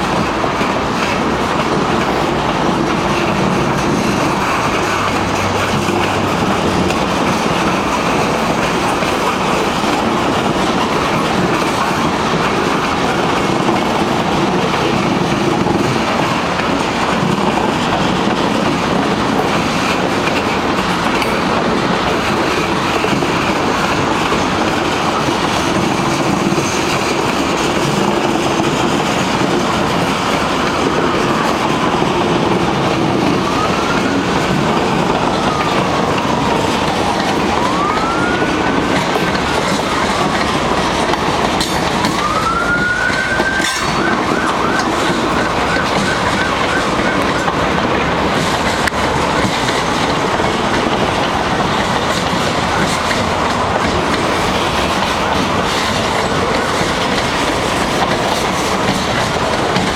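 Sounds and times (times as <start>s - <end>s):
freight train wheels rumbling: 0.0s - 59.9s
siren wailing: 29.4s - 49.5s.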